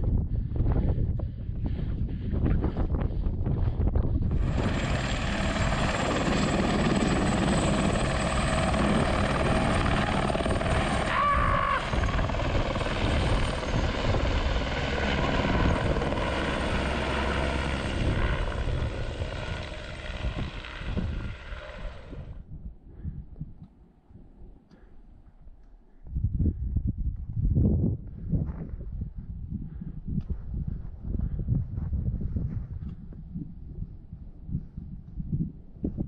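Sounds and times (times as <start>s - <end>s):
helicopter rotor beat: 1.2s - 22.4s
turbine whine: 1.4s - 22.5s.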